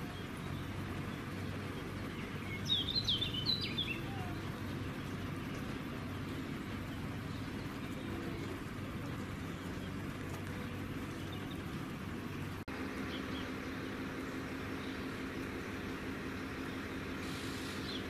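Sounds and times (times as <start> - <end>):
faint bird chirps: 0.0 - 11.8
outdoor background noise: 0.0 - 18.0
steady low hum: 0.0 - 18.0.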